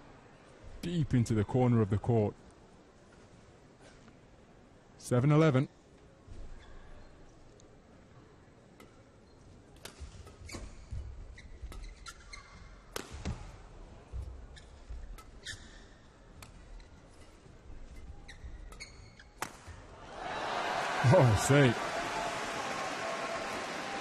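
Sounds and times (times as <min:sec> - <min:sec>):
shoes squeaking on court floor: 0:09.2 - 0:13.5, 0:14.5 - 0:19.8
crowd noise: 0:19.9 - 0:24.0.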